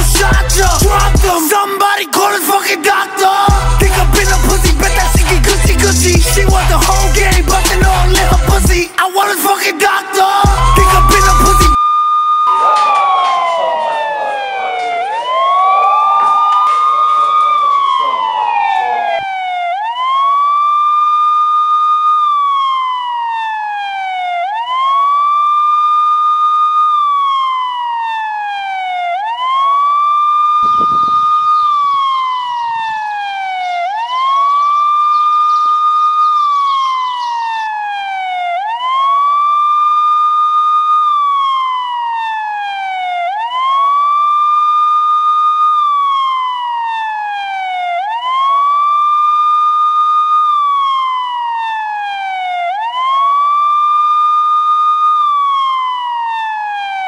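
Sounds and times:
police siren wailing: 0:00.0 - 0:57.0
low thump: 0:30.6 - 0:31.3.

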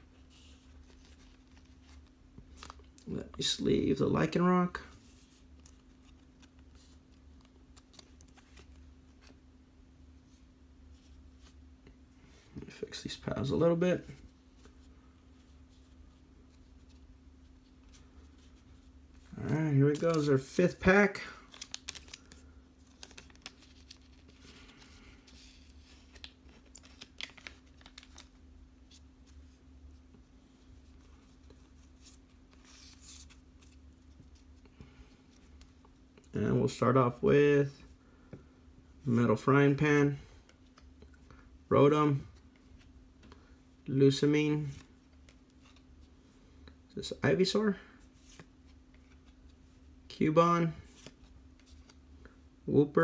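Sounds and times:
faint steady hum: 0:00.0 - 0:53.0
card rustling in plastic sleeve: 0:00.1 - 0:09.4, 0:10.3 - 0:36.8, 0:50.7 - 0:52.3
wrapper crinkling and tearing: 0:21.5 - 0:24.8, 0:26.1 - 0:28.3.

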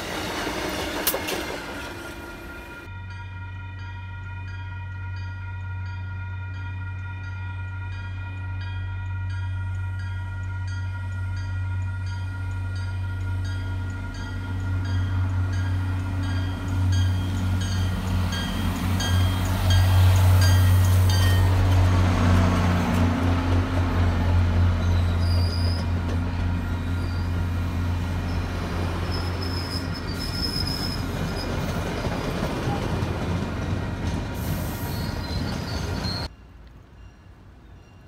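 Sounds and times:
train running on rails: 0:00.0 - 0:38.0
high-pitched wheel squeals: 0:24.8 - 0:25.9, 0:28.3 - 0:31.8, 0:34.6 - 0:36.3.

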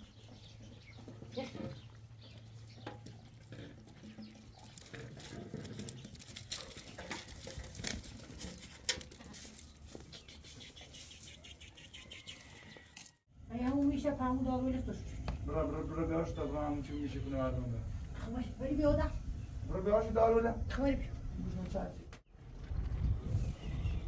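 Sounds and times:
hooves shuffling on ground: 0:00.0 - 0:13.2.

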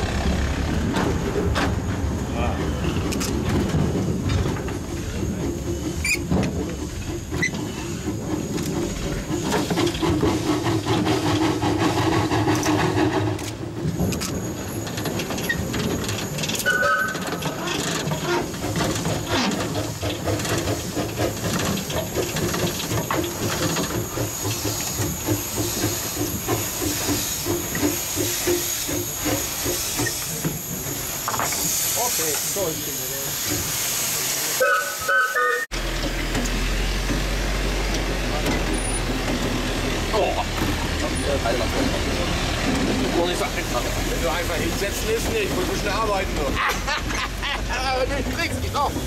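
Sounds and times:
steam locomotive exhaust chuffs: 0:00.0 - 0:49.0
hissing steam: 0:16.0 - 0:35.7, 0:36.6 - 0:46.9
steam whistle: 0:16.6 - 0:17.3, 0:34.6 - 0:35.7.

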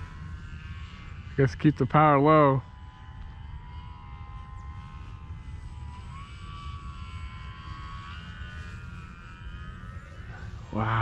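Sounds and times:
model plane motor whine: 0:00.0 - 0:11.0.

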